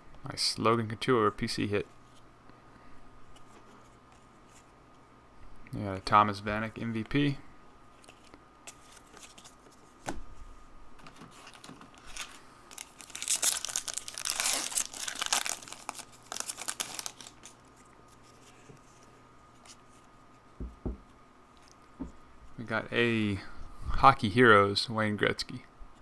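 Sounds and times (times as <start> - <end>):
cards rustling: 8.0 - 10.2, 11.0 - 20.1
plastic wrapper tearing and crinkling: 11.3 - 17.9
soft knock: 20.6 - 21.0.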